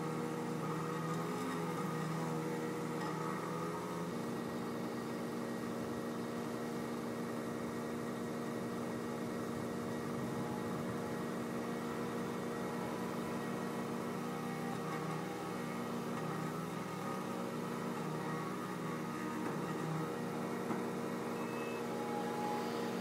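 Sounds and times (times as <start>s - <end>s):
skid steer loader engine: 0.0s - 23.0s
portable generator running: 8.6s - 16.1s.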